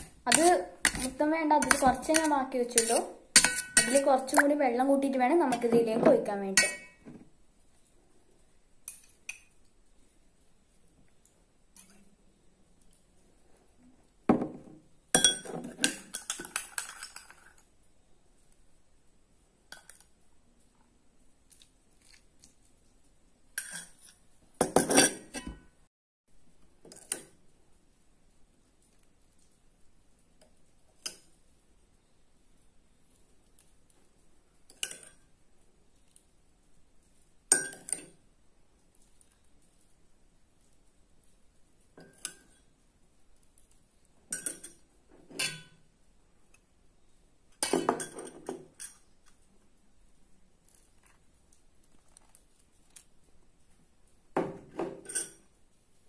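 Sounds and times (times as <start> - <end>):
metal spoon clinking on glass: 1.6 - 4.0, 6.6 - 7.0, 15.2 - 17.2, 37.5 - 38.1.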